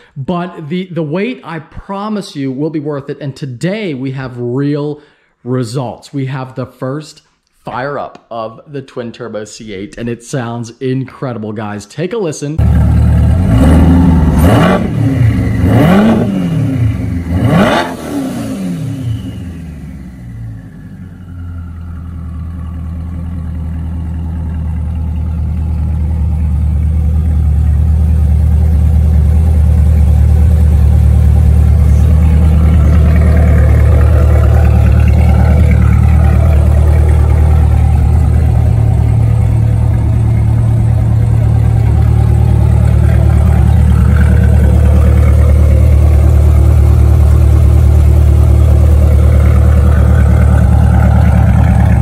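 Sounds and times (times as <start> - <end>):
car engine idling: 12.6 - 52.0.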